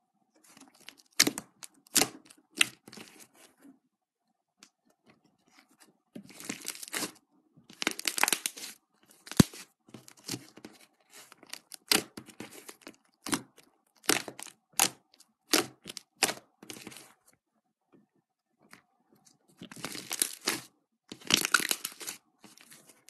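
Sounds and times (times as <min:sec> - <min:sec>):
slime crackling and popping: 0:06.3 - 0:10.5, 0:11.5 - 0:17.0, 0:19.7 - 0:22.8.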